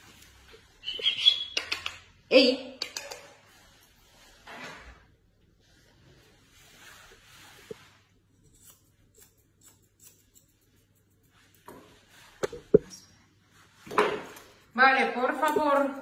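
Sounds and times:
soft rustling of hair and hands: 3.2 - 4.5, 5.4 - 16.0
scissors snipping hair: 8.3 - 11.7, 15.2 - 16.0.

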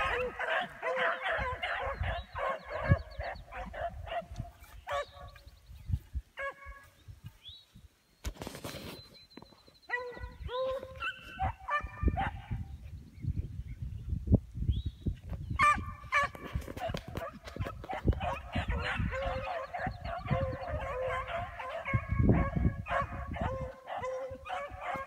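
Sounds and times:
hounds baying: 0.0 - 5.4, 9.9 - 12.6, 15.6 - 25.0.

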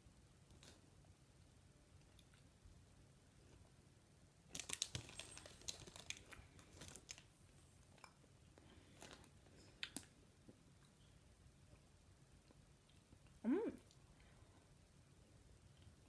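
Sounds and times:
candy wrapper crinkling: 4.5 - 7.4.

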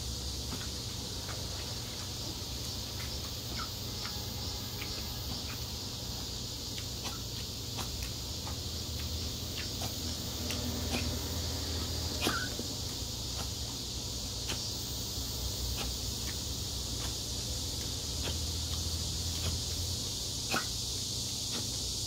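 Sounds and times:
high hiss: 0.0 - 22.0.

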